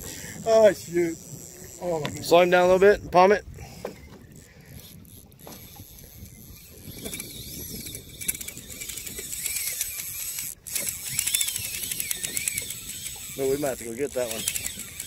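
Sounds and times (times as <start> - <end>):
fishing reel drag clicking: 0.1 - 15.0.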